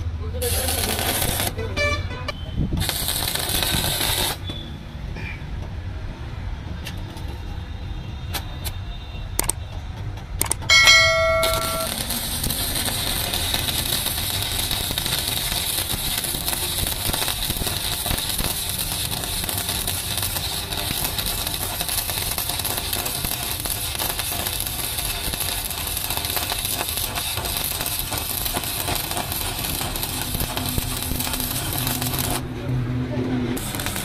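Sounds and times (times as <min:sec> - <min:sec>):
welding arc sizzling: 0:00.0 - 0:01.9, 0:02.8 - 0:04.6, 0:11.1 - 0:32.5, 0:33.5 - 0:34.0
short bell-like chime: 0:10.7 - 0:11.9.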